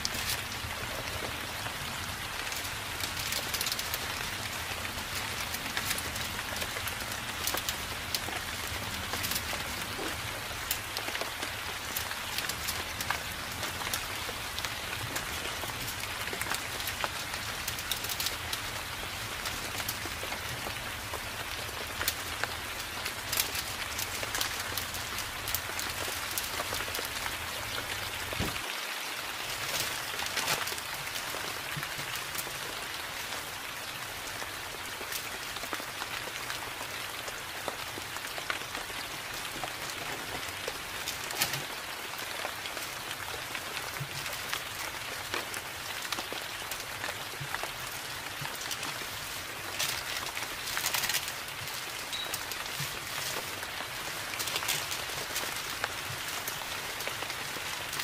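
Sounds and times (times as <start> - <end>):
rain pattering: 0.0 - 58.0
paper crinkling and tapping: 2.4 - 4.0, 5.1 - 18.7, 21.8 - 28.6, 48.4 - 57.3.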